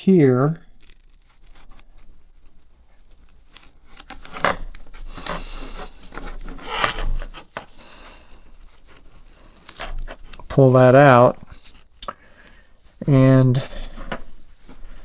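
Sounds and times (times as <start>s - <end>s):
scraping on plastic: 0.7s - 10.6s
hands rubbing foam strip: 0.7s - 11.9s.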